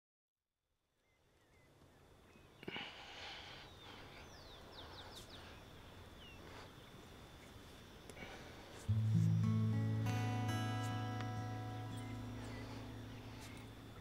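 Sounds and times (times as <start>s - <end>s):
bird chirping: 1.0s - 2.7s, 3.5s - 7.4s, 8.9s - 14.0s
steady low hiss: 1.0s - 14.0s.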